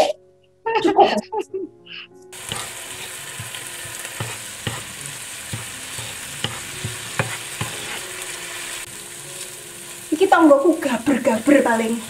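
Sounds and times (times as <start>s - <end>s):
food sizzling in oil: 2.3s - 12.0s
wooden spatula knocking on pan: 2.5s - 8.0s.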